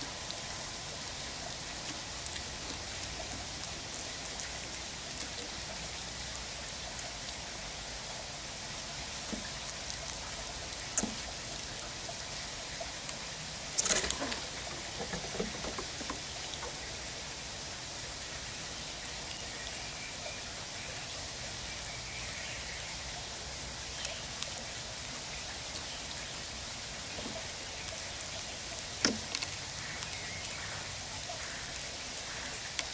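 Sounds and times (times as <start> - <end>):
squirrel cracking seeds: 0.0 - 7.6, 8.6 - 32.9
light rain hissing: 0.0 - 32.9
seeds rustling: 9.1 - 17.1.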